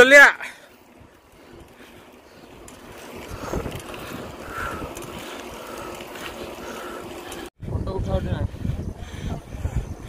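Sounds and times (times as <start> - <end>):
wind buffeting microphone: 0.8 - 10.0.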